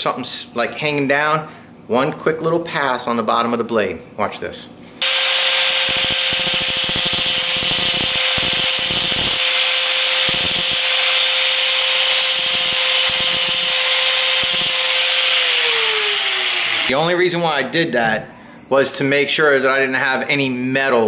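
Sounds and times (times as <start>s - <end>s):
angle grinder grinding steel: 5.0s - 17.0s.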